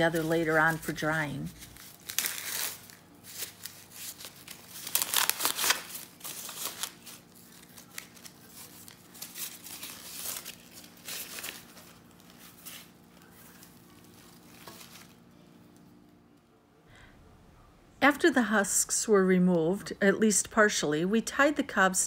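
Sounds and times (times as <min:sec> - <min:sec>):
corn husks rustling: 0:00.0 - 0:15.2.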